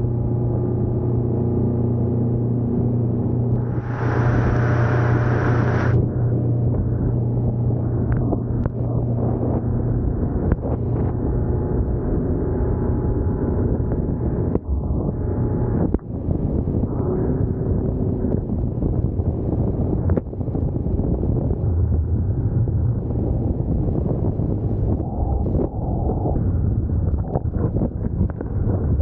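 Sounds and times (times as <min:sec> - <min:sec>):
outboard motor running: 0:00.0 - 0:18.9
wind buffeting microphone: 0:03.4 - 0:29.0
rush of boat wake: 0:03.6 - 0:07.7.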